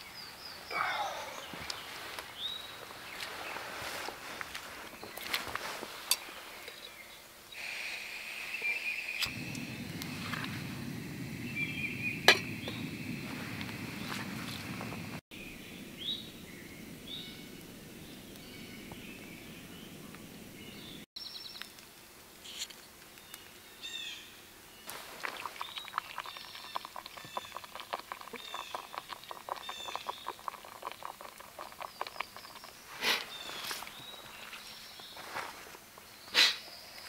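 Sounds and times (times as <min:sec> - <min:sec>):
birds chirping: 0:00.0 - 0:21.7, 0:23.2 - 0:37.0
dense crackling: 0:09.2 - 0:15.2, 0:24.9 - 0:33.0
gas stove burning: 0:09.2 - 0:15.2
coffee foaming in hot water: 0:24.9 - 0:35.1.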